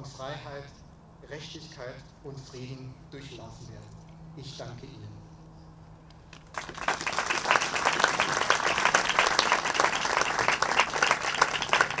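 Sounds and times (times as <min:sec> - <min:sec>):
crowd applauding: 0:06.5 - 0:12.0.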